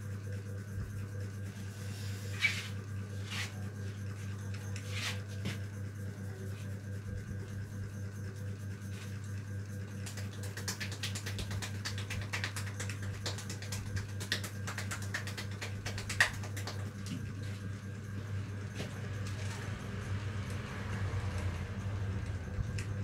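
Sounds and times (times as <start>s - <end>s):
low electrical hum: 0.0s - 23.0s
fingers rubbing through hair: 1.5s - 5.6s
hair crackling and clicking: 10.0s - 17.0s.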